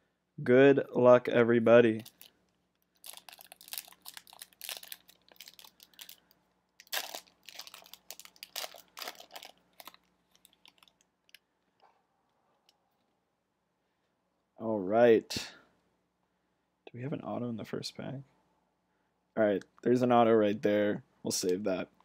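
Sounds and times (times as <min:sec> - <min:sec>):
foil wrapper crinkling and tearing: 0:02.0 - 0:02.3, 0:02.9 - 0:11.0.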